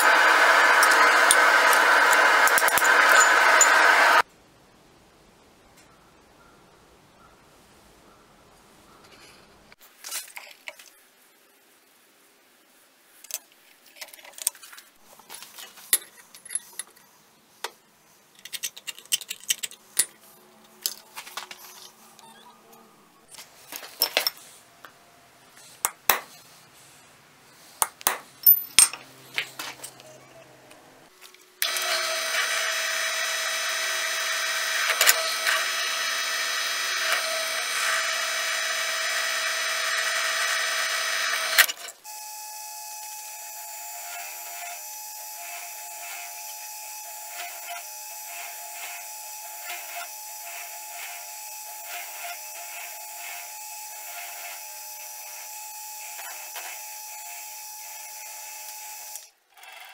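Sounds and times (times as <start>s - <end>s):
drill press drilling steel: 0.0s - 4.2s, 31.6s - 59.3s.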